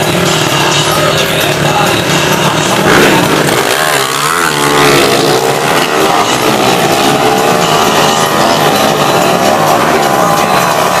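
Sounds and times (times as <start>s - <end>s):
motorcycle engines revving and accelerating: 0.0s - 11.0s.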